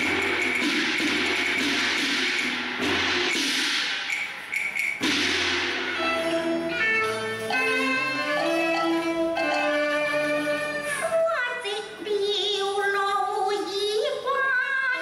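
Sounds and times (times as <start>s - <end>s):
clashing percussion: 0.0s - 11.1s
bowed fiddles melody: 6.0s - 11.2s.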